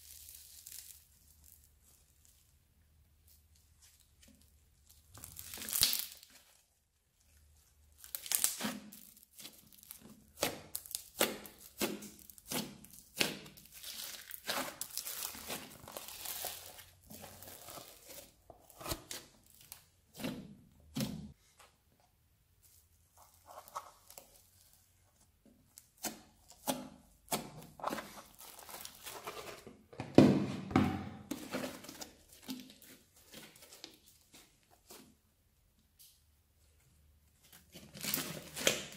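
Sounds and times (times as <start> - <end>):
slime crackling and popping: 0.0 - 2.3, 4.8 - 6.5, 7.9 - 19.9
slime tearing: 0.0 - 2.3, 4.8 - 6.5, 7.9 - 20.3.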